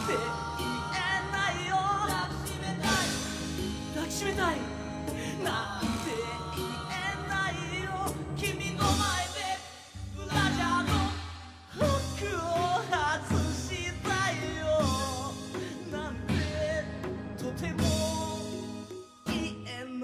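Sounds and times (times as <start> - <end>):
band playing: 0.0 - 9.4
acoustic guitar: 0.0 - 20.0
man singing: 0.0 - 20.0.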